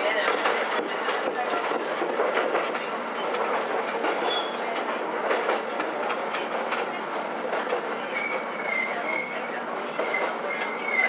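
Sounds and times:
railcar running noise: 0:00.0 - 0:11.0
high wheel squeal: 0:08.2 - 0:09.4.

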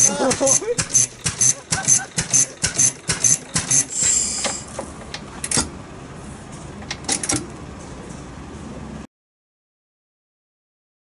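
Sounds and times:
engine turning over with clicks: 0:00.0 - 0:05.7, 0:06.8 - 0:07.6
short hiss: 0:03.7 - 0:04.8.

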